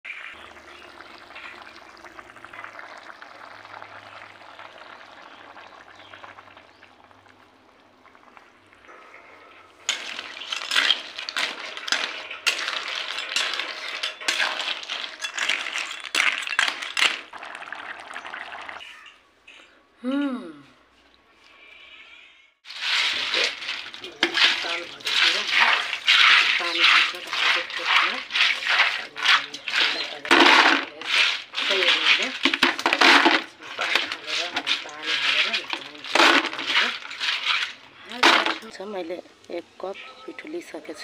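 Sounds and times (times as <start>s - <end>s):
snails sizzling in gravy: 0.1s - 8.6s, 21.8s - 39.7s.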